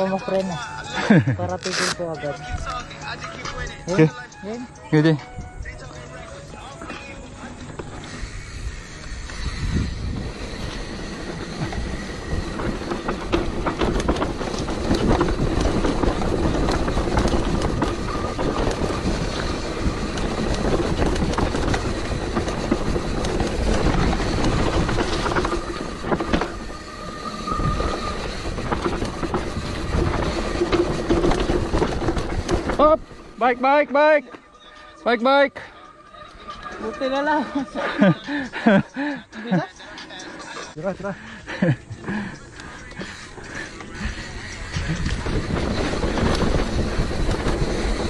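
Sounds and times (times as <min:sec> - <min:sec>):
mountain bike rattling on dirt trail: 0:00.0 - 0:48.0
brake squeal: 0:01.7 - 0:48.0
wind rushing past microphone: 0:08.1 - 0:33.4, 0:41.8 - 0:48.0.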